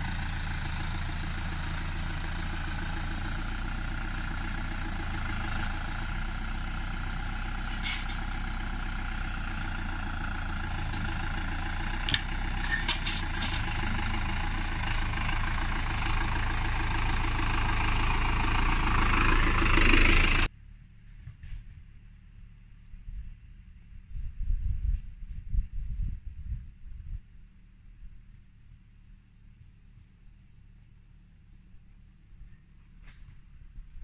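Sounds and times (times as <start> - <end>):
tractor diesel engine running: 0.0 - 24.1.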